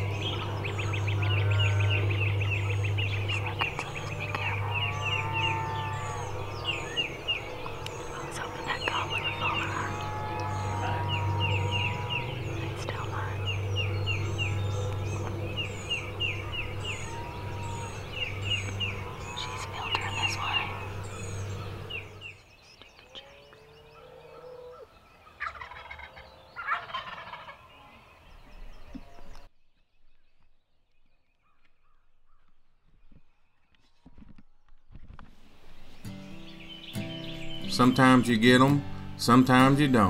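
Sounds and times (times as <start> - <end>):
steady low hum: 0.0 - 24.1
songbirds calling: 0.0 - 40.0
turkeys gobbling: 9.1 - 12.9, 24.0 - 27.7.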